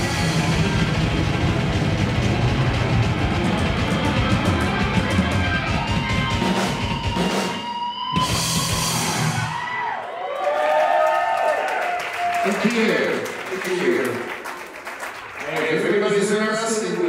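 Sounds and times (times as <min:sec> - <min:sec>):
live rock band playing: 0:00.0 - 0:09.6.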